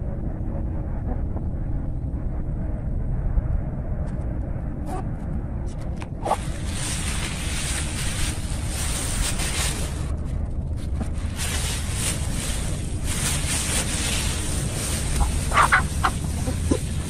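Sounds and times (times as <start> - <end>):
wind buffeting microphone: 0.0 - 17.0
chicken clucking: 15.2 - 16.8.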